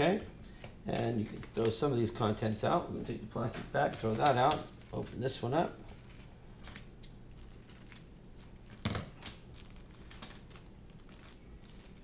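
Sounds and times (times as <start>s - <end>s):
plastic bags crinkling: 3.4s - 12.0s.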